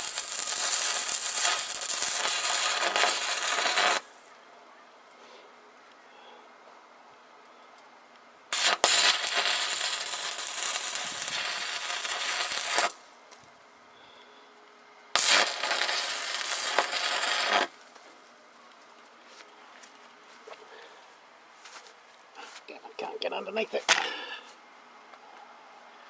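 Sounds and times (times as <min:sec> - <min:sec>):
welding arc strike: 0:00.0 - 0:04.1, 0:08.5 - 0:13.0, 0:15.2 - 0:17.8
arc welding burning: 0:00.0 - 0:04.3, 0:08.5 - 0:13.5, 0:15.1 - 0:18.1.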